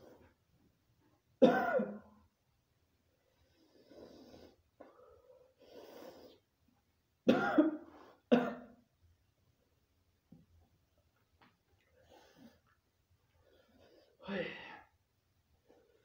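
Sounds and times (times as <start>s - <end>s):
man coughing hard: 1.4s - 2.1s, 7.3s - 8.8s
breathy exhalations: 13.6s - 14.9s.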